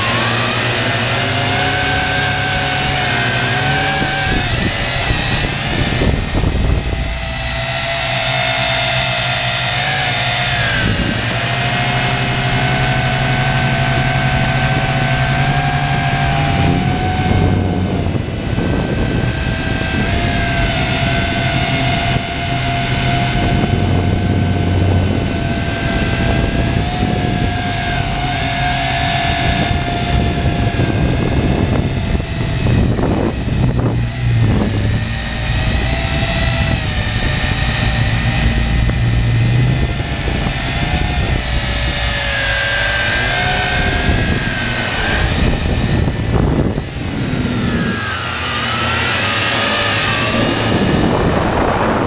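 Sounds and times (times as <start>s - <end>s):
drone propellers whining: 0.0s - 52.0s.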